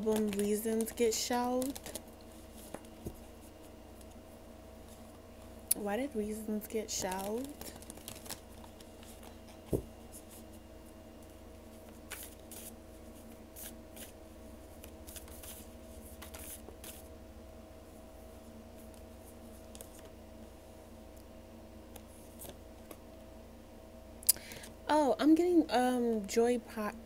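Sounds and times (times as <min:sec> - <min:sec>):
cards shuffling: 0:00.0 - 0:03.2, 0:06.9 - 0:10.4, 0:11.8 - 0:14.2, 0:14.8 - 0:17.1
faint steady hum: 0:00.0 - 0:27.0.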